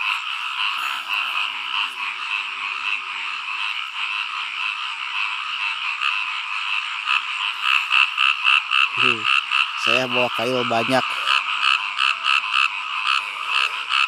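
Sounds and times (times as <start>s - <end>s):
frogs calling: 0.0s - 14.0s.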